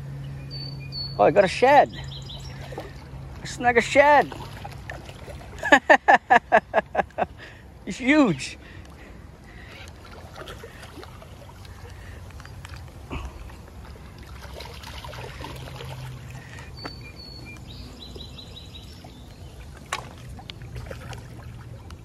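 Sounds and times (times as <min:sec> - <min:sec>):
water sloshing against rocks: 0:01.7 - 0:06.4, 0:08.2 - 0:17.7, 0:18.7 - 0:22.0
fish splashing at water surface: 0:09.5 - 0:16.8, 0:18.9 - 0:22.0.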